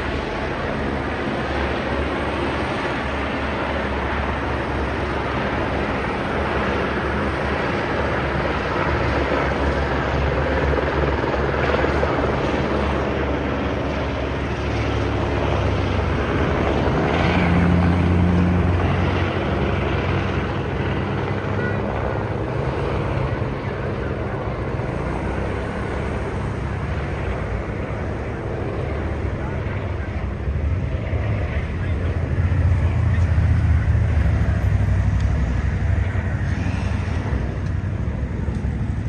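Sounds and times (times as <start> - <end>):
aircraft droning overhead: 0.0 - 39.0.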